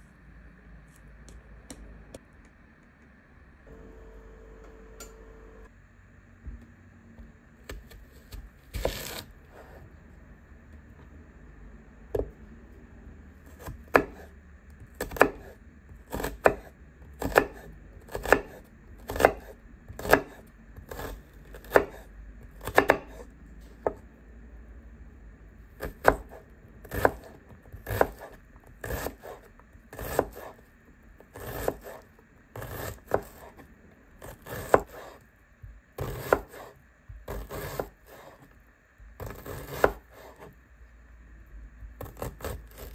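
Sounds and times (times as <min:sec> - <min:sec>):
knife cutting onion on board: 0:07.2 - 0:09.9, 0:13.5 - 0:24.0, 0:25.7 - 0:35.3, 0:36.0 - 0:38.5, 0:39.2 - 0:40.6, 0:42.0 - 0:42.9.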